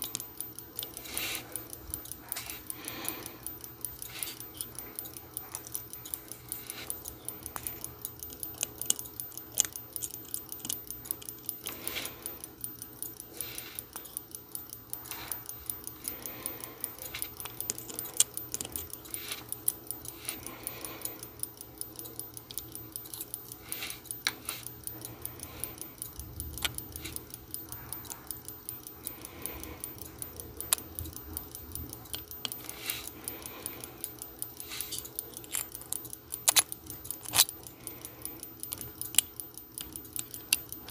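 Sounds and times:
clothes dryer humming: 0.0s - 10.6s
mechanical watch ticking: 0.0s - 40.9s
tweezers clicking on metal: 0.0s - 40.9s.

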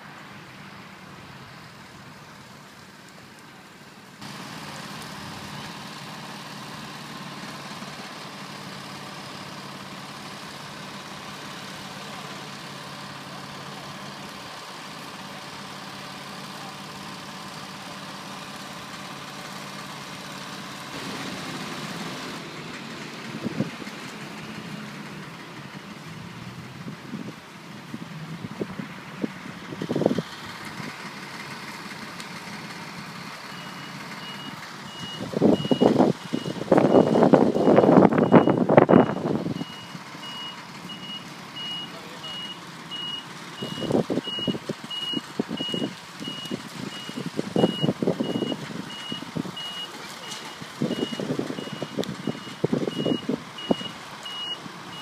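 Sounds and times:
fire engine idling: 0.0s - 55.0s.

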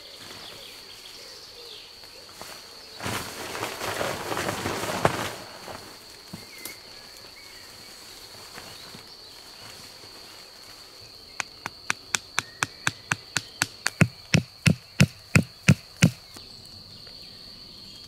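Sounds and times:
crickets chirping: 0.0s - 18.0s
wooden stake knocked into ground: 11.4s - 16.2s.

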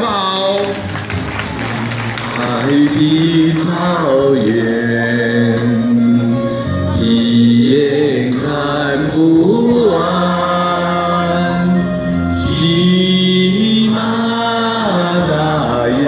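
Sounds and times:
backing music track: 0.1s - 15.7s
group singing a folk song: 2.2s - 5.9s, 7.0s - 16.0s.

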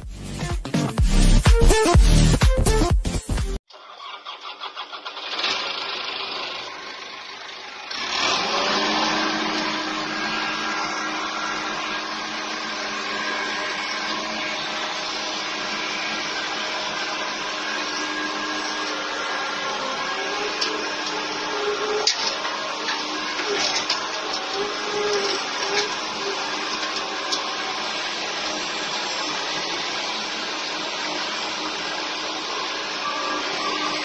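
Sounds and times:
diesel truck engine under load: 3.8s - 34.0s.

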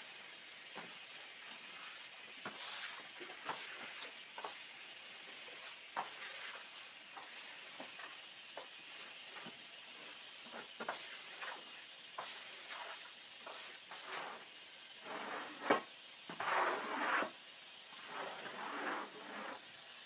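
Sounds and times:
brush scrubbing wet rug: 1.8s - 4.6s, 5.4s - 8.1s, 12.2s - 17.4s, 18.0s - 19.6s.

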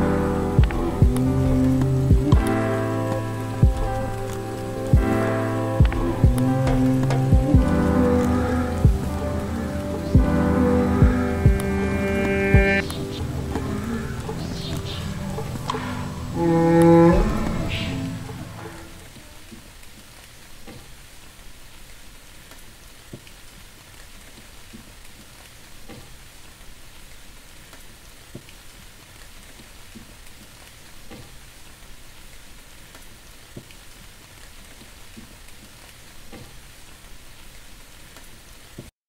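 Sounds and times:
steady rain hiss: 0.0s - 38.9s
soft drips and taps: 19.2s - 21.2s, 21.8s - 26.6s, 27.5s - 38.9s.

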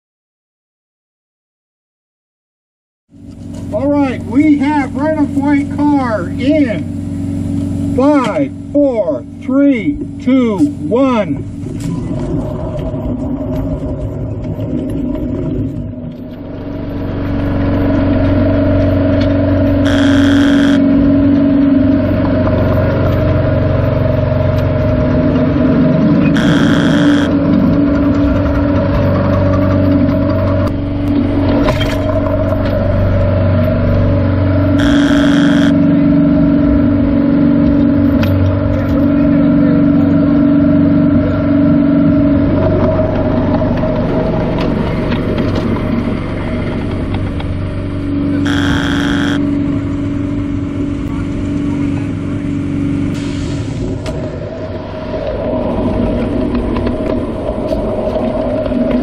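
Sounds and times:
steel wheels rolling on track: 11.6s - 34.2s, 42.4s - 50.0s.

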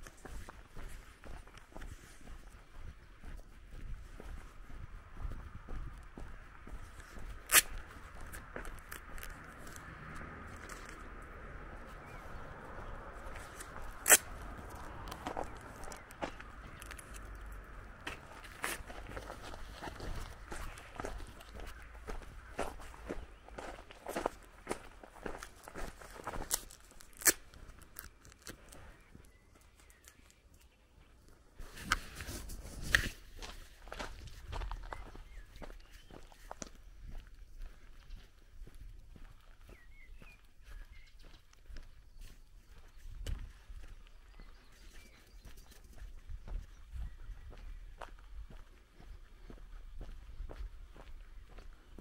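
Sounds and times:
footsteps on gravel: 0.0s - 52.0s
shoe scuffs: 6.9s - 8.4s, 31.6s - 34.1s.

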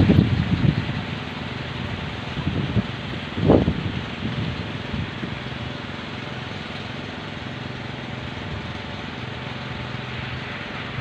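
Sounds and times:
strong wind rushing: 0.0s - 1.2s, 2.3s - 5.2s
wooden windmills droning hum: 0.0s - 11.0s.

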